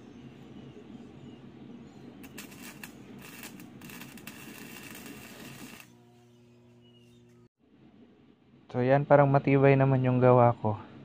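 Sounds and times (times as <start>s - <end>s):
low machine hum: 0.0s - 11.0s
welding arc crackling: 2.2s - 6.6s.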